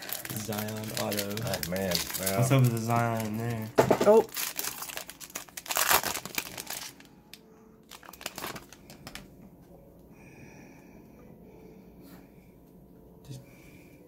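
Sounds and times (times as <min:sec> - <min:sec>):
foil wrapper crinkling: 0:00.0 - 0:09.3.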